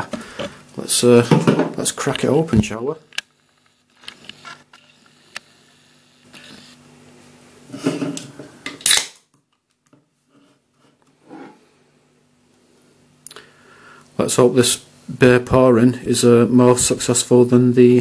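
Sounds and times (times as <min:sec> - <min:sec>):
can ring-pull opening with hiss: 0:08.8 - 0:09.2.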